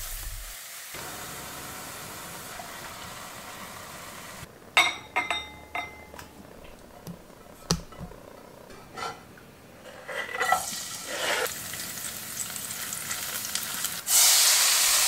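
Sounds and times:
vegetables sizzling in a pan: 0.0 - 5.7, 9.8 - 15.0
utensil clinking and scraping pan: 4.8 - 11.5.

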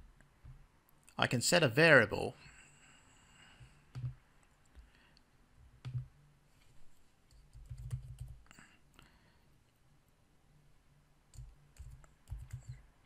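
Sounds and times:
keyboard keystrokes: 5.8 - 6.1, 7.3 - 8.4.

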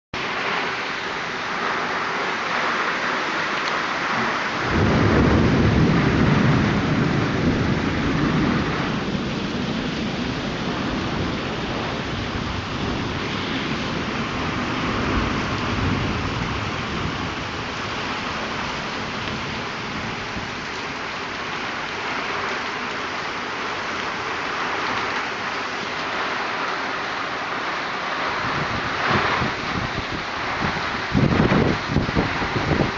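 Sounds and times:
heavy rain pouring: 0.2 - 32.9
water streaming off awning: 0.2 - 32.9
thunder rumbling: 4.1 - 22.0, 27.4 - 32.9.

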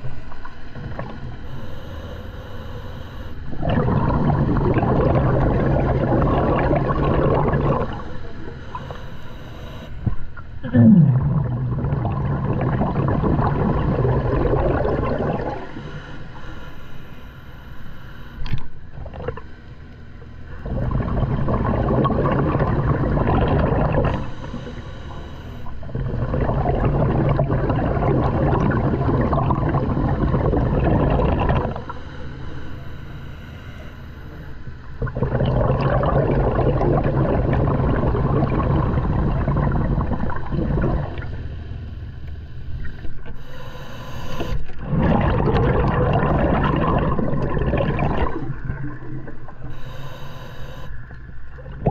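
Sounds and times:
diver exhaling bubbles: 3.5 - 9.8, 10.6 - 16.0, 19.0 - 19.5, 20.6 - 24.8, 25.7 - 32.0, 34.9 - 41.4, 43.0 - 50.9, 51.6 - 51.9
regulator inhalations: 43.3 - 44.6, 49.6 - 51.0.

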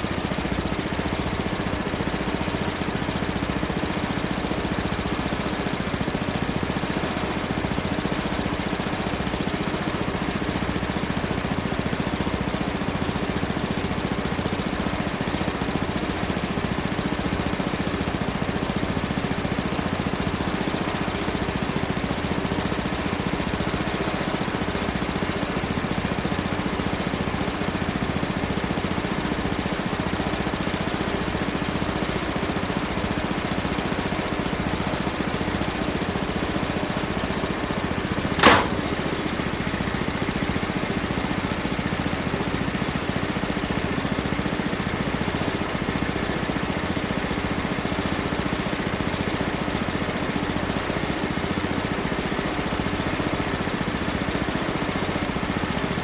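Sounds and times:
engine running steadily: 0.0 - 56.0.

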